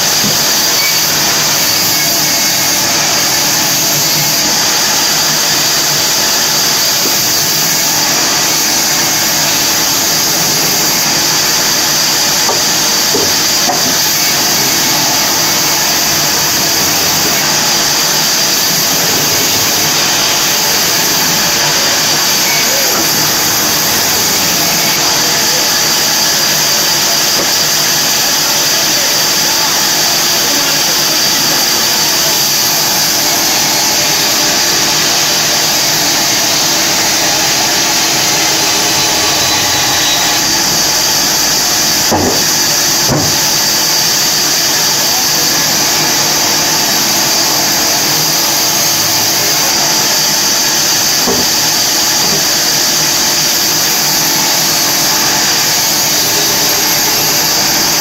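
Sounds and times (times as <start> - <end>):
bandsaw cutting logs: 0.0 - 58.0
knocks: 42.1 - 42.4.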